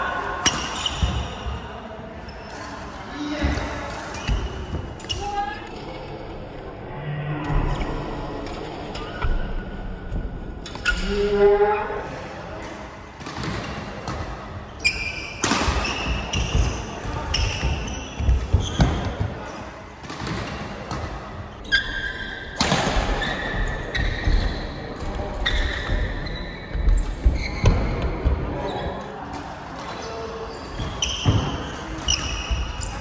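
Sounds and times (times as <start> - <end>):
sneakers squeaking on court: 0.4 - 1.6, 2.3 - 5.4, 13.3 - 28.0, 29.8 - 33.0
rackets hitting shuttlecock: 13.2 - 19.2.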